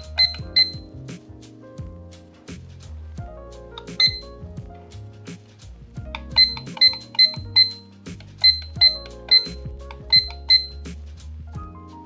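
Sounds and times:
background music: 0.0s - 12.0s
alarm clock beeps: 0.2s - 0.9s, 6.4s - 7.8s, 8.4s - 10.8s.

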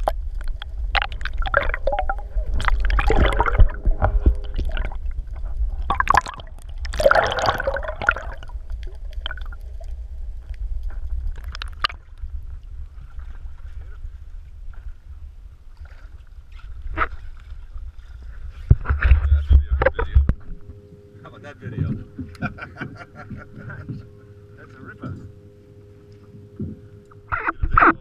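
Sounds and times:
water bubbling: 0.0s - 13.1s
low rumble: 0.0s - 28.0s
underwater gurgling and sloshing: 0.0s - 28.0s.

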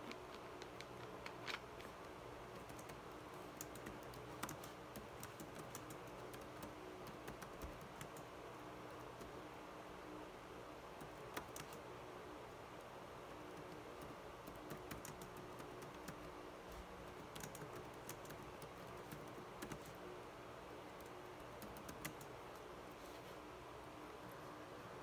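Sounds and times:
steady low hum: 0.0s - 25.0s
typing on computer keyboard: 2.5s - 8.3s, 11.0s - 11.8s, 13.5s - 16.3s, 17.1s - 19.9s, 21.0s - 22.3s.

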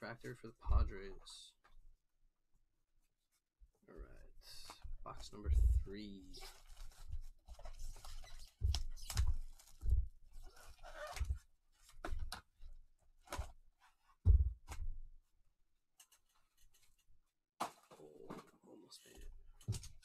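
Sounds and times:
cardboard rustling: 6.2s - 14.0s
wrapping crinkling: 6.3s - 11.2s.

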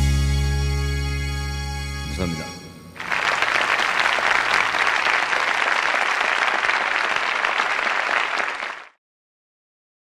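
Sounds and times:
crowd applause: 3.0s - 9.0s.

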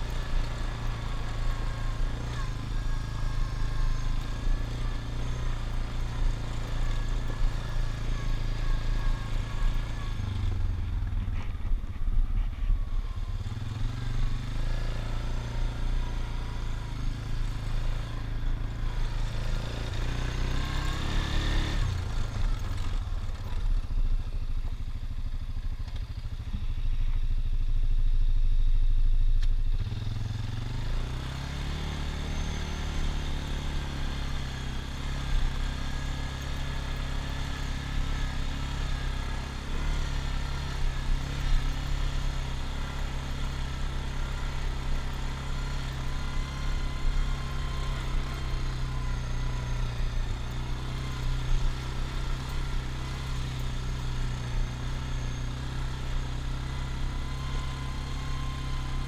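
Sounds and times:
atv engine revving: 0.0s - 11.7s, 13.2s - 23.4s, 29.7s - 59.0s.

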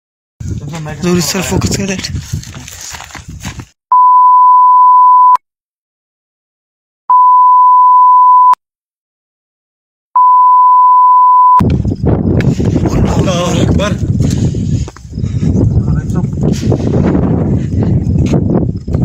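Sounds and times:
long electronic beeps: 3.9s - 5.4s, 7.1s - 8.6s, 10.2s - 11.6s.

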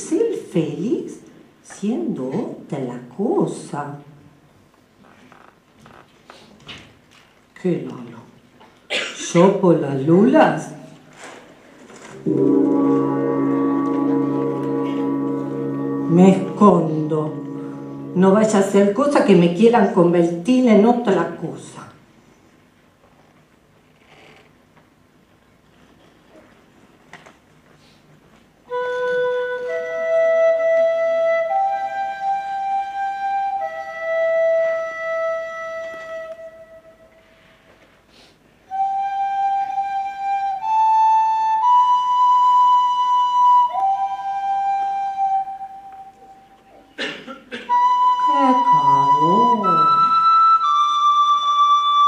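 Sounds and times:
low wavering sliding sound: 12.2s - 18.3s
flute playing slow melody: 12.2s - 18.9s, 28.7s - 37.7s, 38.7s - 47.0s, 47.7s - 52.0s.

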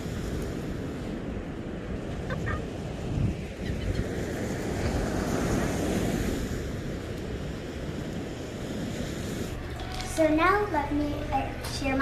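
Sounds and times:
ocean surf washing: 0.0s - 12.0s
wind buffeting microphone: 0.0s - 12.0s
seagull cries: 2.3s - 2.7s.

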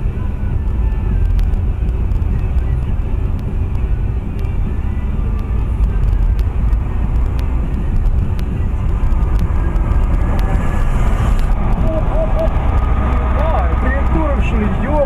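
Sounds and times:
car cabin road and engine rumble: 0.0s - 15.0s.

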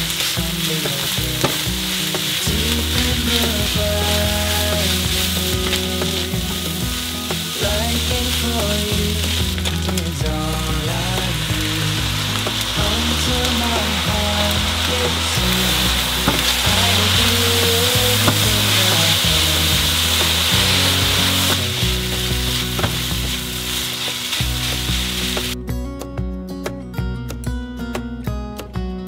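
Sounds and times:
rice sizzling in a wok: 0.0s - 25.6s
sauce hitting hot metal: 0.0s - 25.6s.

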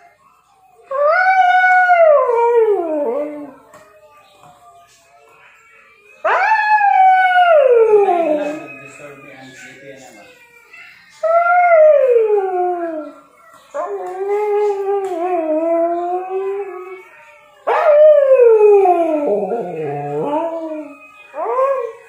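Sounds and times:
dog howling: 0.9s - 3.6s, 6.2s - 8.9s, 17.6s - 22.0s.

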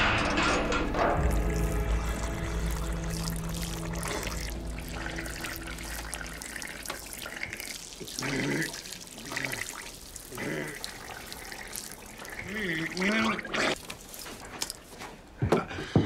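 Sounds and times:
low music drone: 0.0s - 8.5s
water pouring and splashing: 0.0s - 15.4s.

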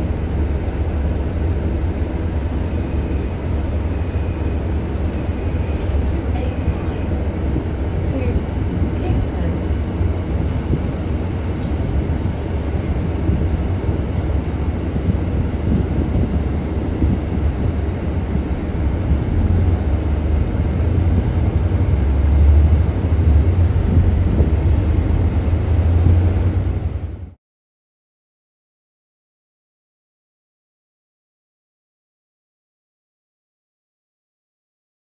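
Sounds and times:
jet engines rumbling: 0.0s - 27.4s.

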